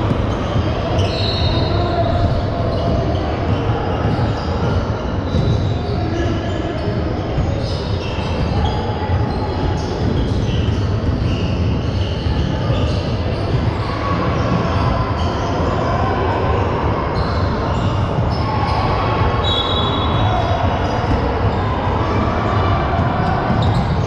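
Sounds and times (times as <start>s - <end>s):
basketball bouncing on court: 0.0s - 15.5s, 22.5s - 24.0s
crowd noise in a large hall: 0.0s - 24.0s.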